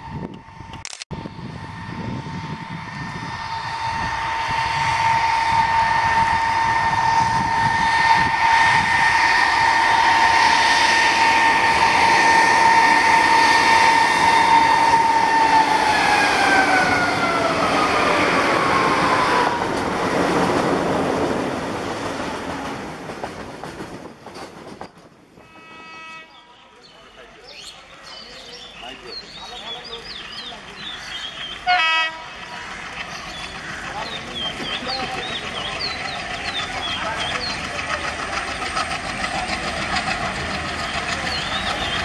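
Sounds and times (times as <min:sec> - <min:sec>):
train wheels rushing: 0:00.0 - 0:26.2, 0:26.9 - 0:42.0
diesel locomotives whining: 0:00.0 - 0:42.0.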